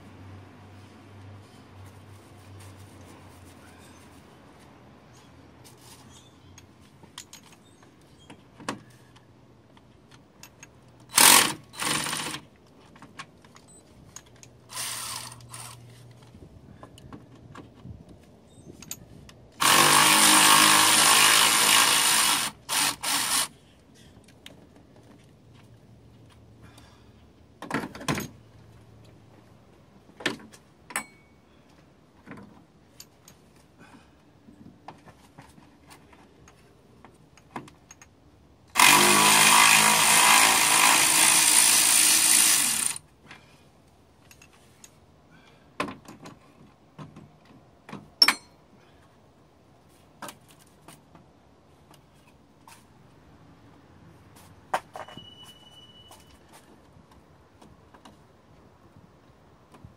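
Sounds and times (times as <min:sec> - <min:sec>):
tools clicking and knocking: 0:06.6 - 0:08.8, 0:09.7 - 0:14.6, 0:47.0 - 0:48.6
power ratchet spinning: 0:11.1 - 0:12.4, 0:14.7 - 0:15.8, 0:19.6 - 0:23.5, 0:38.7 - 0:43.0.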